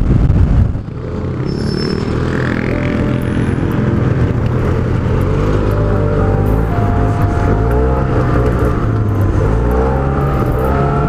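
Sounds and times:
wind rush: 0.0s - 5.7s
scooter engine running: 0.8s - 11.0s.

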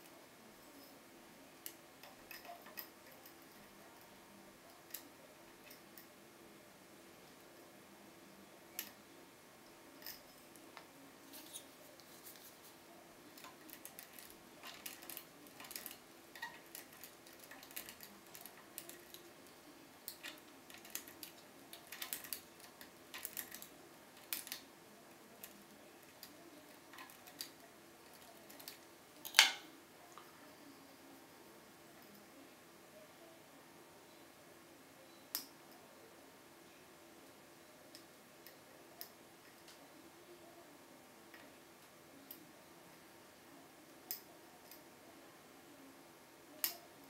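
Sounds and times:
lock pick ticks and scrapes: 13.4s - 19.2s, 20.1s - 24.6s.

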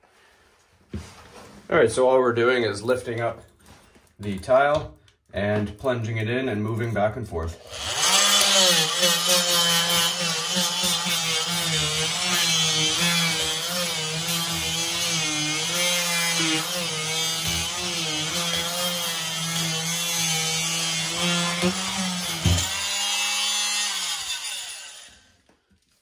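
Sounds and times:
oscillating multi-tool buzzing: 7.6s - 25.3s.

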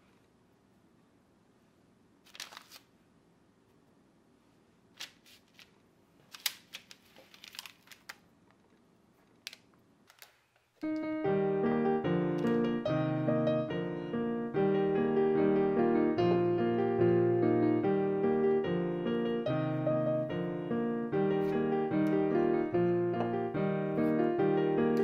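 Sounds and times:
faint room noise: 0.0s - 25.0s
parchment paper rustling: 2.2s - 3.0s, 4.9s - 8.2s
piano music: 10.8s - 25.0s.

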